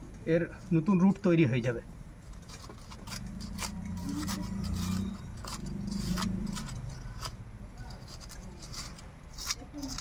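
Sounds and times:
knife scraping soil off roots: 0:02.5 - 0:10.0.

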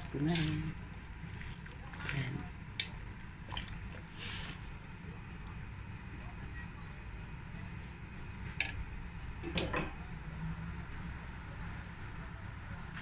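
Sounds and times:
steady low hum: 0:00.0 - 0:13.0
kitchen clatter: 0:09.4 - 0:10.0.

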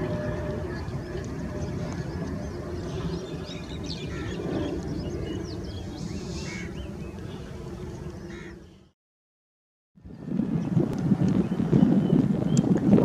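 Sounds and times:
distant jet engine rumble: 0:00.0 - 0:08.9, 0:10.0 - 0:13.0
birds chirping: 0:00.0 - 0:09.0.

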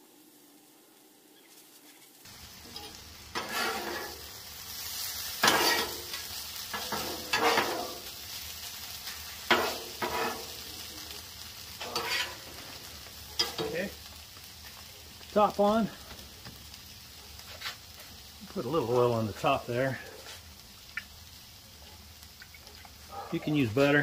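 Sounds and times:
meat sizzling on griddle: 0:00.0 - 0:24.0
metal spatula scraping griddle: 0:02.6 - 0:08.1, 0:09.0 - 0:10.9, 0:11.8 - 0:13.8.

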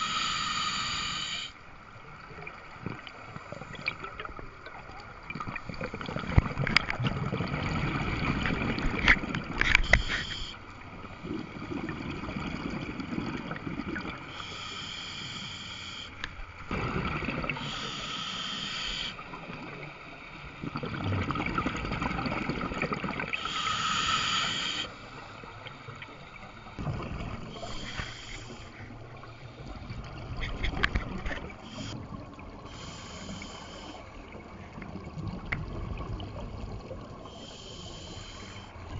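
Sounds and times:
regulator hissing inhale: 0:00.0 - 0:01.6, 0:09.6 - 0:10.8, 0:14.2 - 0:16.3, 0:17.5 - 0:19.4, 0:23.3 - 0:26.8, 0:27.5 - 0:30.0, 0:31.5 - 0:32.0, 0:32.6 - 0:34.2, 0:37.2 - 0:38.9
bubbling exhale underwater: 0:16.7 - 0:18.0, 0:26.8 - 0:28.7.

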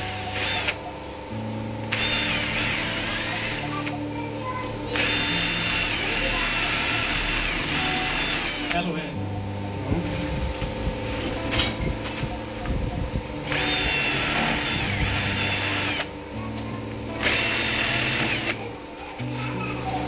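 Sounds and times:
electric drill whining: 0:00.0 - 0:00.9, 0:01.9 - 0:04.0, 0:05.0 - 0:08.9, 0:13.5 - 0:16.1, 0:17.2 - 0:18.6.

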